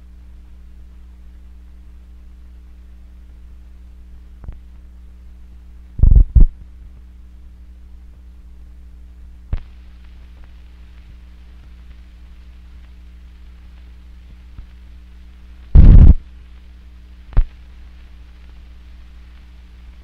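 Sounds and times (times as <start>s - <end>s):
film soundtrack hum: 0.0s - 20.0s
faint pop: 9.5s - 9.8s, 15.7s - 16.2s
loud low thumps: 15.8s - 16.2s.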